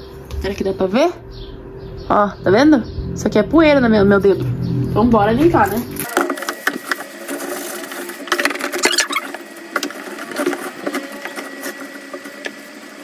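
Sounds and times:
cloth squeaking on plastic: 8.6 - 9.4.

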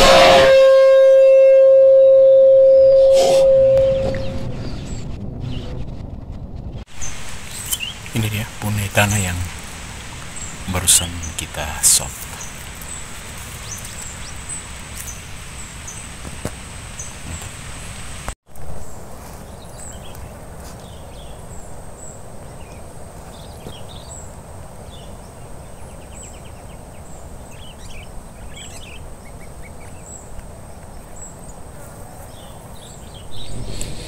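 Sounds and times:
outdoor background noise: 0.0 - 34.0
bird trill: 2.7 - 5.7
bird chirps: 2.8 - 5.9.

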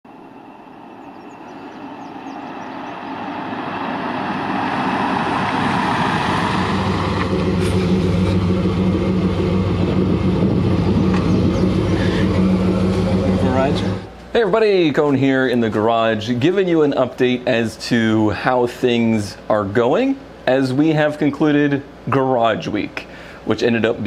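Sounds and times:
road noise: 0.0 - 14.3
truck engine: 0.1 - 14.2.

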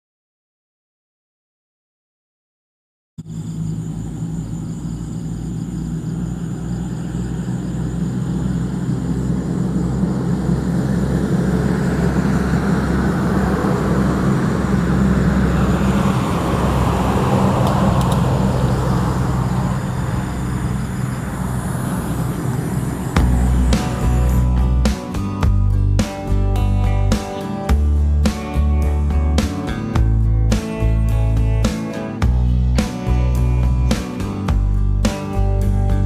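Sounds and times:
road traffic noise: 3.2 - 36.0
vehicle engine hum: 3.2 - 36.0.

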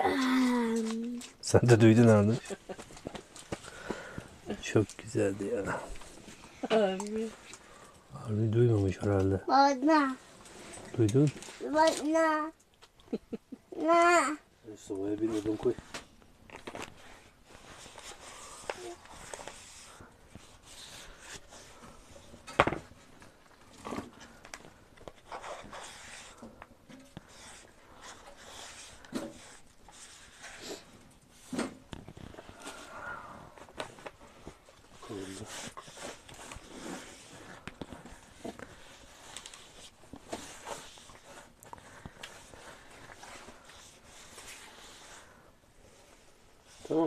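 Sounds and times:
light clicks and rustles: 10.4 - 13.2.

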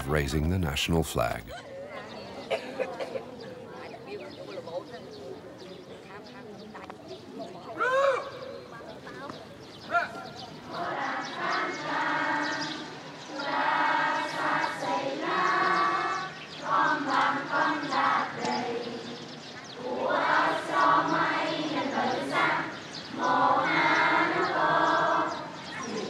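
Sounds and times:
children singing together: 10.7 - 26.0.

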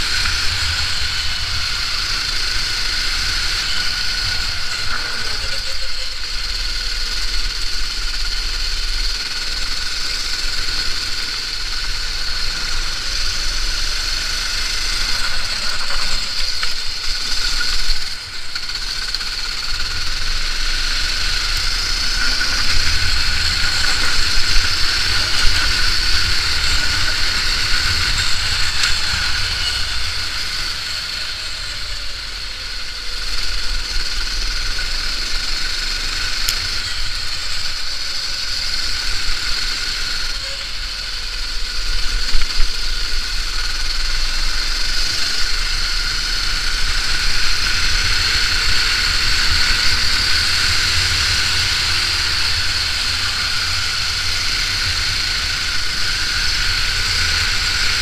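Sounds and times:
kart engine running at speed: 0.0 - 58.0.

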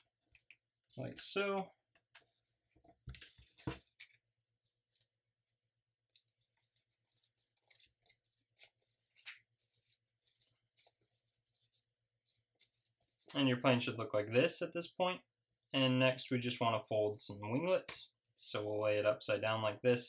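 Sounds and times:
paper rustling and crinkling: 2.2 - 5.2, 6.1 - 13.4.

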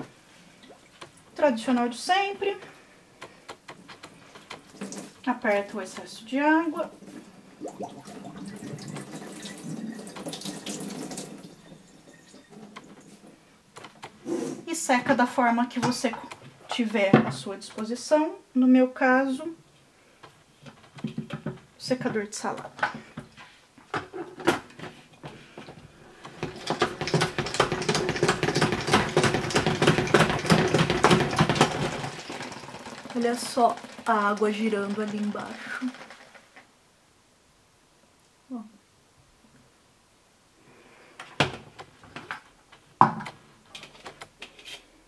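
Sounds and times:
water dripping into a sink: 7.6 - 12.0
salad spinner clicking and whirring: 26.3 - 36.6.

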